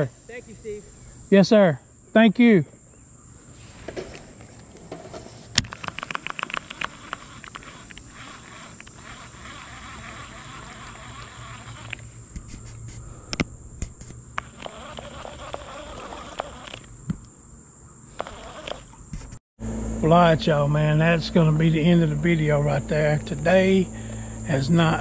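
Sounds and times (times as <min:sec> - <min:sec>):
insects buzzing: 0:00.0 - 0:25.0
fishing reel clicking: 0:05.6 - 0:12.1, 0:14.4 - 0:16.9.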